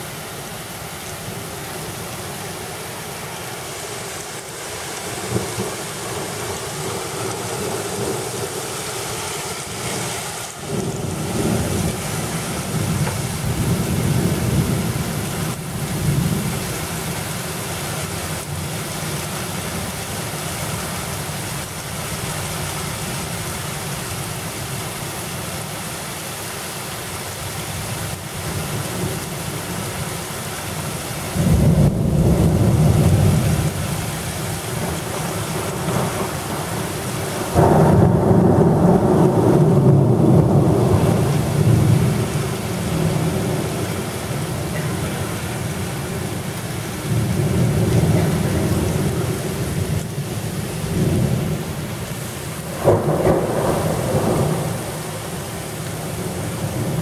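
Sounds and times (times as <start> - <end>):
heavy rain: 0.0 - 57.0
thunder rumbling: 5.0 - 16.9, 31.3 - 57.0.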